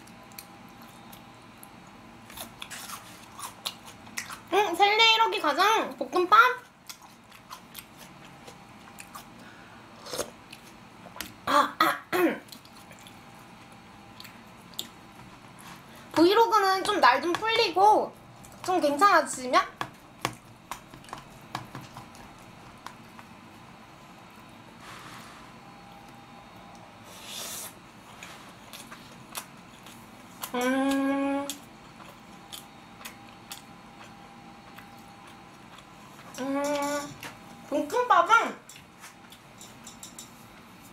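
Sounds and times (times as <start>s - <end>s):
woman coughing: 11.5s - 12.4s
chewing clicks: 28.7s - 35.9s
person humming mmm: 30.4s - 31.7s, 36.3s - 37.2s.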